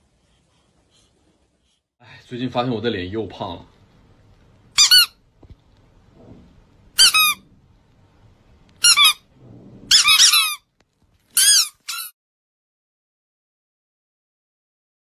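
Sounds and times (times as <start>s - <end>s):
squeaky toy squeaks: 4.8s - 5.2s, 7.0s - 7.4s, 8.8s - 9.2s, 9.9s - 10.6s, 11.3s - 12.2s.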